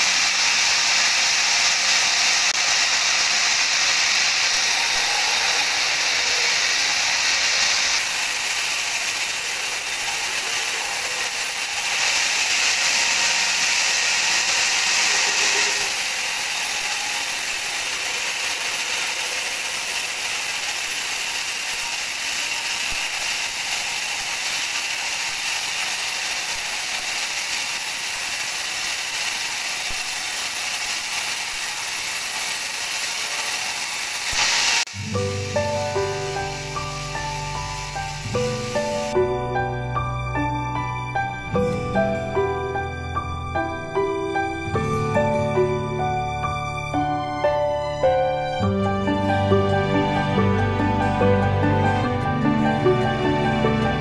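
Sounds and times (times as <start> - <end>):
band saw cutting log: 0.0 - 54.0.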